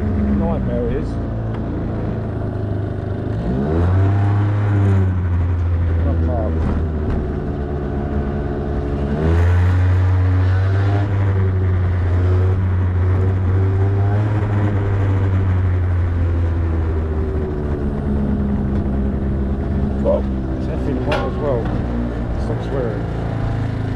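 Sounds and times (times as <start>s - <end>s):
motorbike engine revving: 0.0s - 23.9s.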